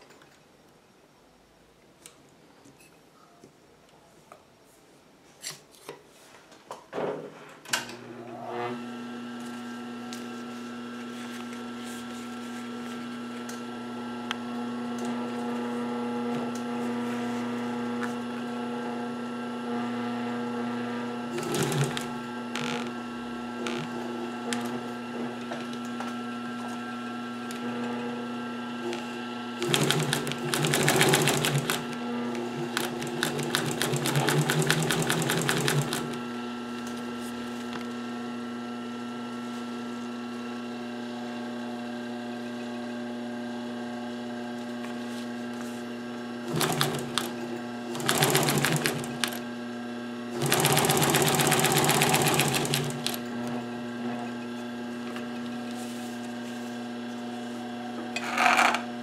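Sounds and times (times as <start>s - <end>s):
sewing machine stitching: 21.3s - 23.0s, 28.8s - 36.2s, 46.4s - 49.5s, 50.3s - 53.6s, 58.2s - 58.8s.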